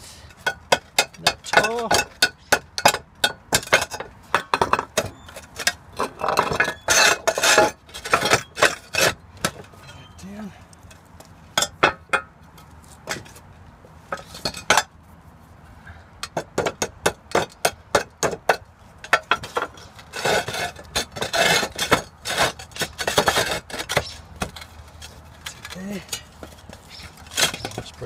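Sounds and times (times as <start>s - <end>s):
hammer tapping on roof tiles: 0.4s - 9.6s, 16.2s - 19.8s
tiles scraping and rattling: 3.7s - 10.1s, 17.9s - 27.9s.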